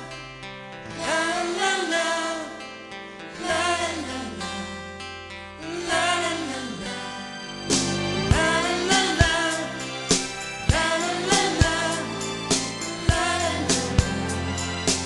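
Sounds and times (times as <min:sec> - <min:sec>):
person singing la la la: 0:00.9 - 0:02.7, 0:03.3 - 0:04.9, 0:05.6 - 0:07.2, 0:08.2 - 0:15.0
instrumental pop backing: 0:03.4 - 0:15.0.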